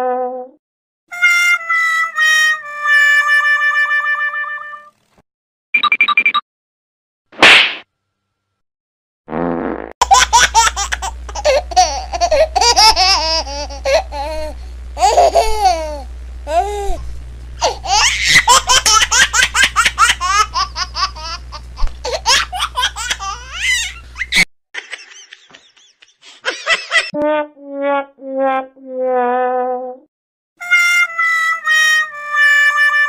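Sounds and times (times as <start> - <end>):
high-pitched child-like laughter: 10.0 - 17.0, 17.6 - 27.2
low hum: 10.1 - 24.2.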